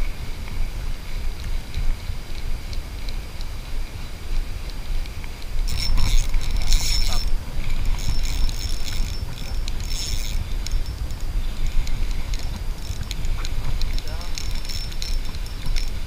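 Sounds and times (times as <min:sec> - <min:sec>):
wind and water rumble: 0:00.0 - 0:16.0
fishing reel drag buzzing: 0:04.6 - 0:16.0.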